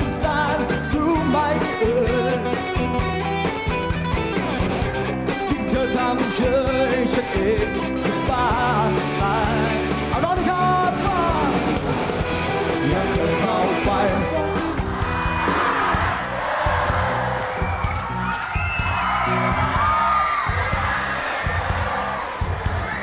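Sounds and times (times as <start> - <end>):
man singing: 0.0 - 3.0, 5.3 - 11.8, 12.5 - 14.8
electric guitar: 0.0 - 16.1
drum kit: 0.0 - 23.0.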